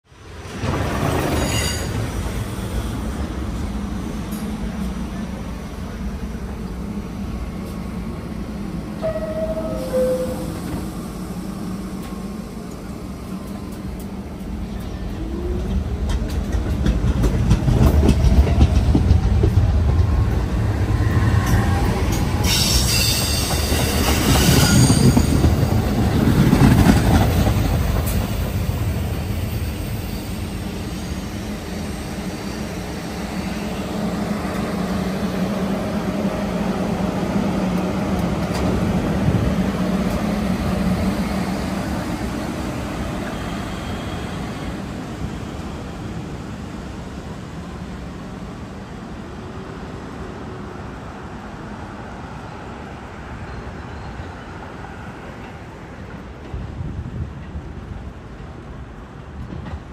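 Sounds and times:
train wheels rumbling on rail: 0:00.1 - 0:59.9
high wheel squeal: 0:01.4 - 0:02.0, 0:21.5 - 0:25.6.

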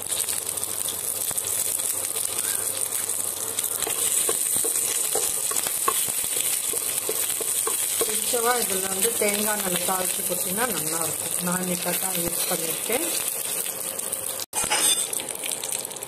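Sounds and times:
spices sizzling in hot oil: 0:00.0 - 0:16.0
wooden spatula stirring: 0:03.8 - 0:11.0.

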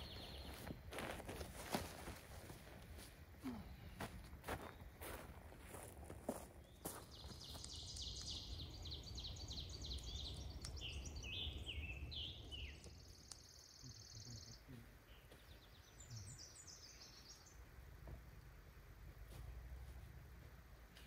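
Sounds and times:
songbirds singing: 0:00.0 - 0:19.2.

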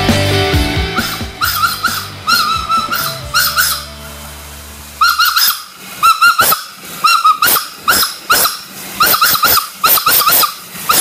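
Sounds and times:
dog yapping: 0:01.0 - 0:03.8, 0:05.0 - 0:11.0.

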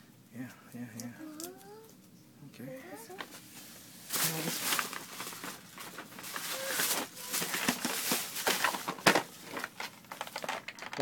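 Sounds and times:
wrapping paper rustling: 0:03.0 - 0:11.0.

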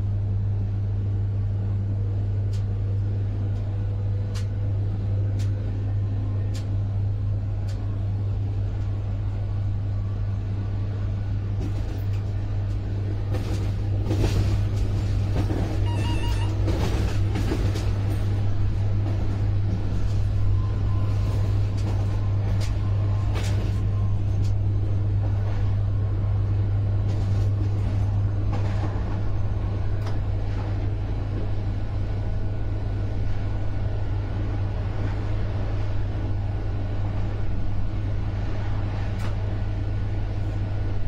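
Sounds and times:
electric train running: 0:13.1 - 0:25.8
short high tones: 0:15.8 - 0:16.6.

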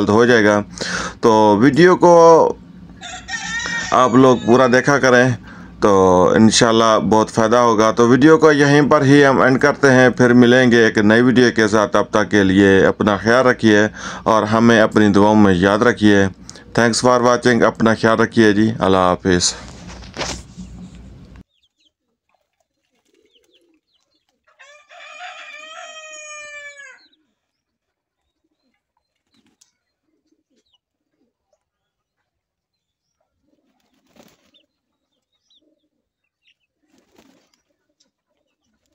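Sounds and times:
rooster crowing: 0:03.0 - 0:05.1, 0:24.5 - 0:27.2.

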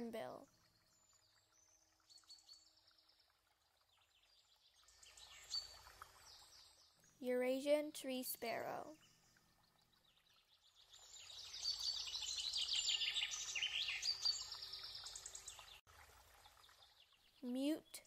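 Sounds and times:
sparrows chirping: 0:04.0 - 0:07.6, 0:10.0 - 0:15.8.

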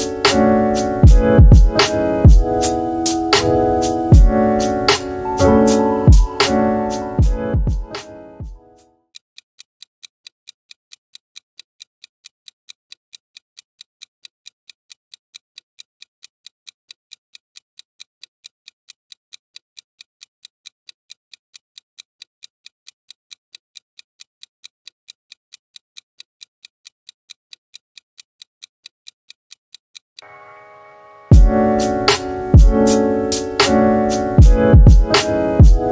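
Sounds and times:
countdown timer ticking: 0:00.0 - 0:08.6, 0:31.3 - 0:35.9.

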